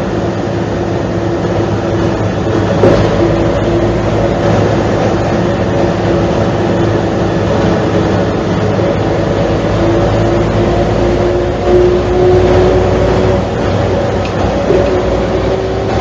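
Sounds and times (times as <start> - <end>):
bus diesel engine idling: 0.0 - 16.0.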